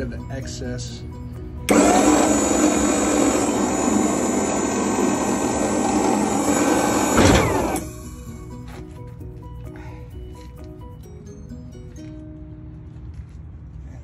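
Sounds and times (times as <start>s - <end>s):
motor spinning down whine: 1.7s - 8.2s
hydraulic pump motor running: 1.7s - 8.4s.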